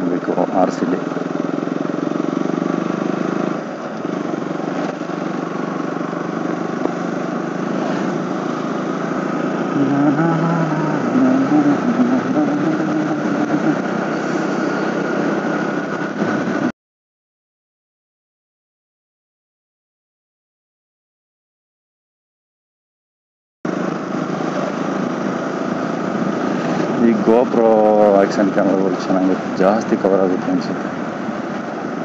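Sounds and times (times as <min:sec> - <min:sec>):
motorcycle engine running: 0:00.0 - 0:16.7, 0:23.7 - 0:32.0.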